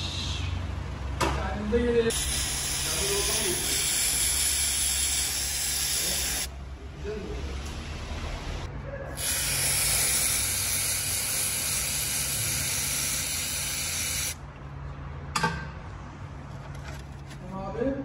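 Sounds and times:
aerosol spray hissing: 2.1s - 6.5s, 9.2s - 14.4s.

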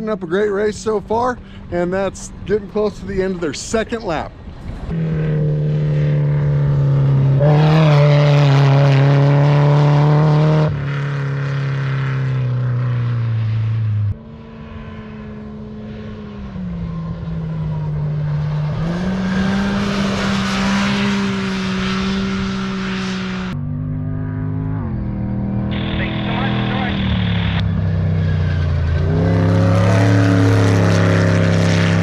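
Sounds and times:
race vehicle engines at high revs: 0.0s - 32.0s.

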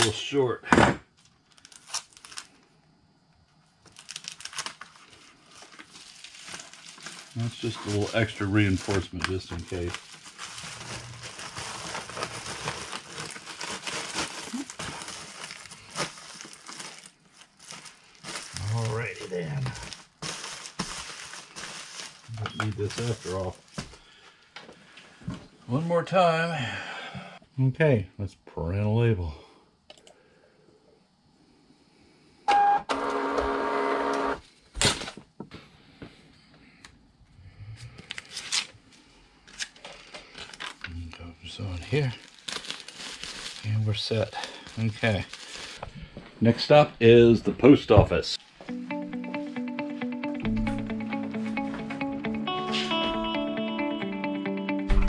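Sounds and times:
plastic bag and envelope rustling: 1.2s - 2.7s, 3.8s - 24.2s, 38.0s - 46.3s
paper handling: 3.8s - 23.9s
printer feed motor whirring: 32.5s - 34.4s
printer start tone: 32.5s - 34.4s.

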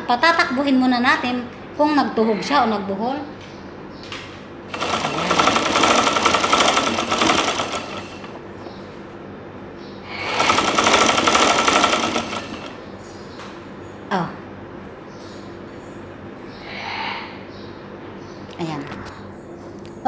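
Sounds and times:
sewing machine stitching: 4.7s - 8.4s, 10.2s - 12.8s.

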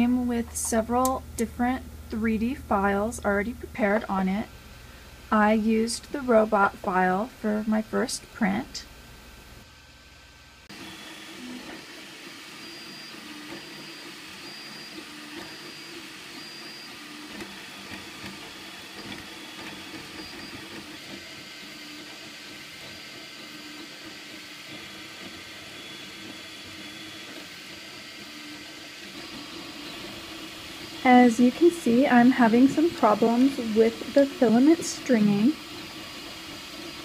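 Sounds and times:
cooling fans hissing: 0.0s - 37.0s
stepper motors whirring: 10.6s - 37.0s.

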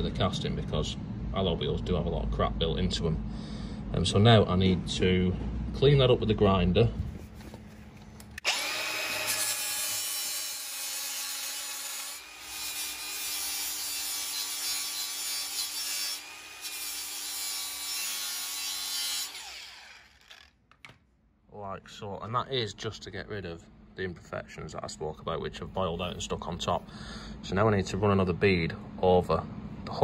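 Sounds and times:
angle grinder grinding metal: 8.4s - 20.5s.

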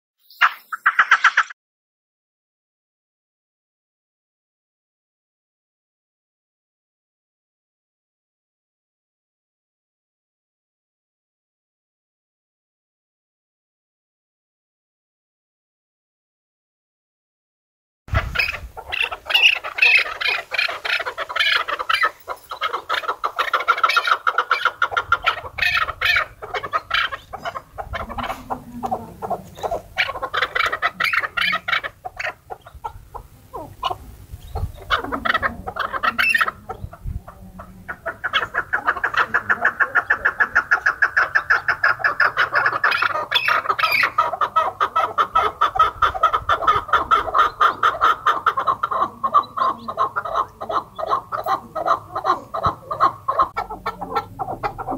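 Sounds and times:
partridges clucking: 18.1s - 37.0s, 37.6s - 54.9s.

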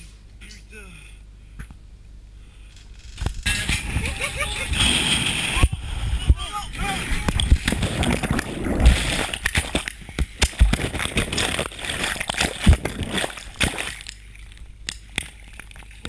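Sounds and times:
water sloshing and splashing: 7.2s - 16.0s.

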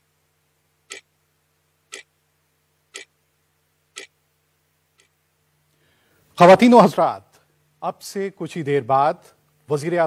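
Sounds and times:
faint steady hum: 0.0s - 10.0s
clock ticking: 0.8s - 1.1s, 1.9s - 2.1s, 2.9s - 3.2s, 3.9s - 4.2s.

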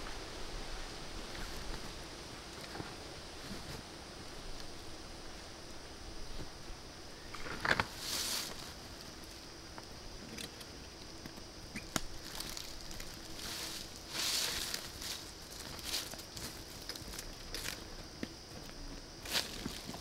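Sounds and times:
rustling on dry leaves: 7.3s - 9.5s, 11.8s - 18.0s, 18.6s - 20.0s.

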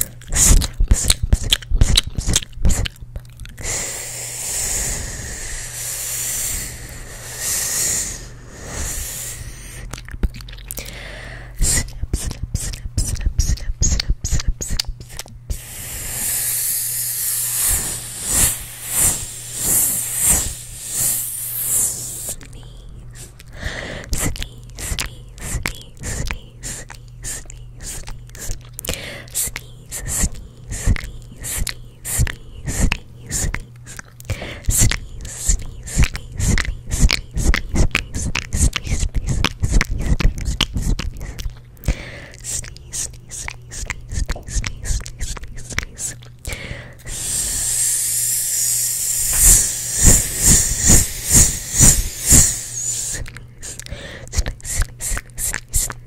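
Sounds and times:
wet mouth clicks and smacks: 0.0s - 3.8s, 8.8s - 11.0s, 11.6s - 56.0s
mouth hissing into microphone: 3.6s - 9.9s, 15.5s - 22.5s, 47.1s - 56.0s
sharp ts puffs popping microphone: 3.6s - 9.9s, 14.2s - 22.6s, 23.2s - 28.5s, 29.3s - 41.4s, 47.0s - 56.0s
soft whispers: 10.9s - 41.5s, 47.0s - 56.0s.

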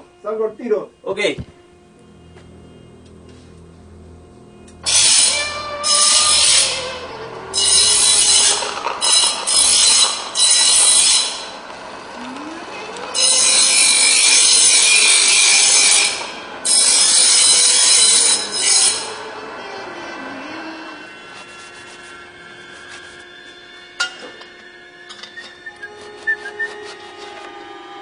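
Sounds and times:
faint hum: 0.0s - 7.6s, 11.5s - 13.2s
power grinder grinding metal: 2.4s - 28.0s.

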